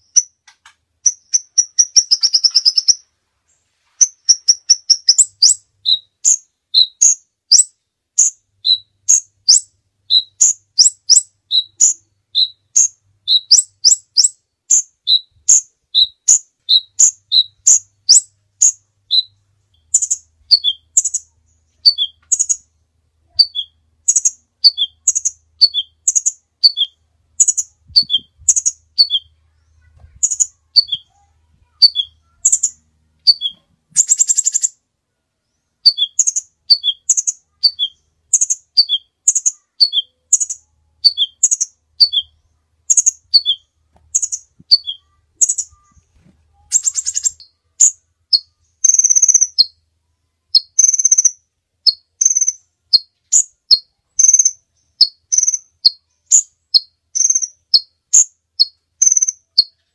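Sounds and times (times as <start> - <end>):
bird chips: 0.0 - 3.0, 23.4 - 34.8, 42.9 - 49.7, 51.9 - 55.7, 56.3 - 59.9
buzzy bird trill: 1.0 - 3.1, 4.0 - 34.8, 35.8 - 49.8, 50.5 - 59.9.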